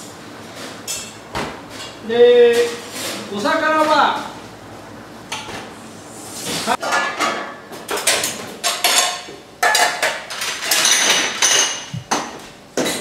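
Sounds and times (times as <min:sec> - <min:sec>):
metal pans and utensils clattering: 0:00.6 - 0:03.9, 0:06.5 - 0:13.0.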